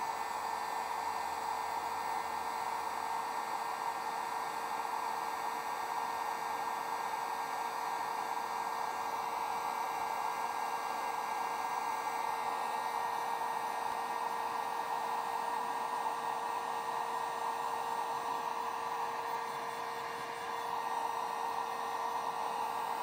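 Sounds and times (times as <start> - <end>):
heat gun blowing air: 0.0 - 23.0.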